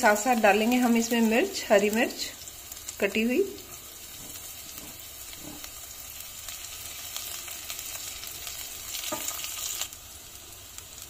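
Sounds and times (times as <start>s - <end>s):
garlic sizzling in hot oil: 0.0s - 11.0s
spatula stirring in pan: 3.6s - 9.9s.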